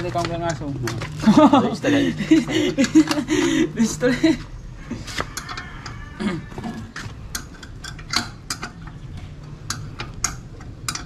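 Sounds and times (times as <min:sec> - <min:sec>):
wires and connectors clicking: 0:00.0 - 0:01.2, 0:06.6 - 0:11.0.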